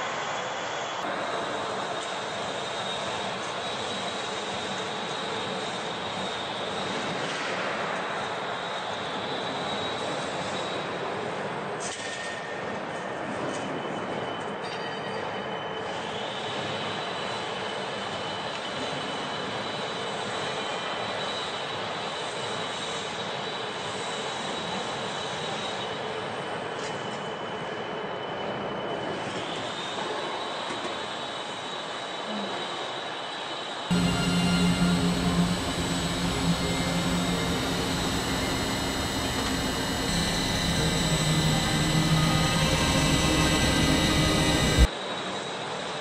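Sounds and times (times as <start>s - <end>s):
factory machinery hiss and rumble: 33.9s - 44.9s
faint high whine: 33.9s - 45.4s.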